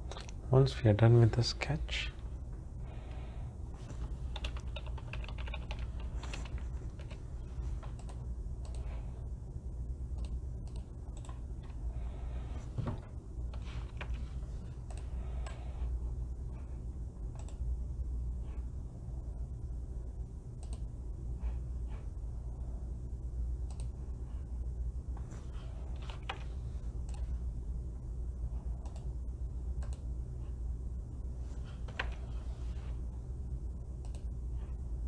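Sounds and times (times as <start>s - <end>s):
steady low hum: 0.0s - 35.0s
computer keyboard typing: 4.0s - 7.2s, 13.5s - 14.2s, 25.9s - 27.2s.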